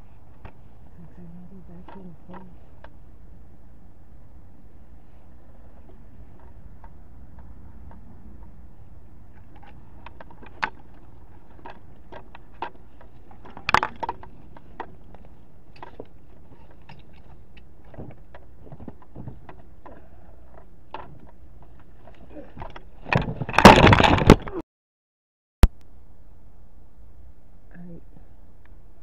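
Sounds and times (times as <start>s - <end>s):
rustling and knocking: 9.2s - 24.5s.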